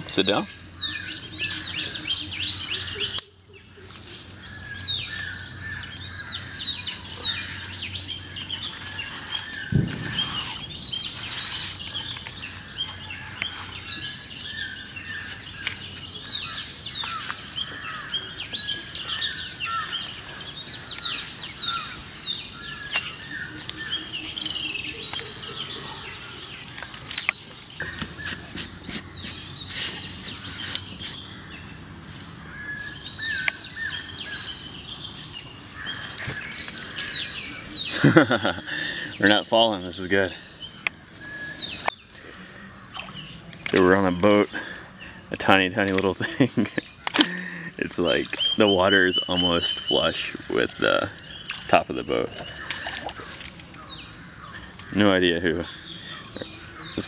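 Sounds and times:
birds chirping: 0.0s - 57.0s
dull thump: 9.6s - 11.1s.

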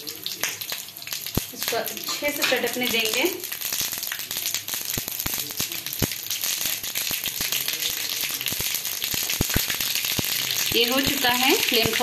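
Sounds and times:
oil sizzling: 0.0s - 12.0s
seeds popping in hot oil: 0.0s - 12.0s.

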